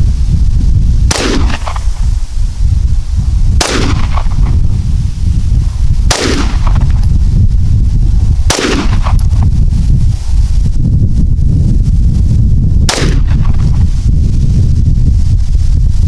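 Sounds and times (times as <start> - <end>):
wind buffeting microphone: 0.0 - 16.0
pistol shots with echo: 1.1 - 1.8, 3.6 - 4.4, 6.1 - 6.9, 8.5 - 9.2.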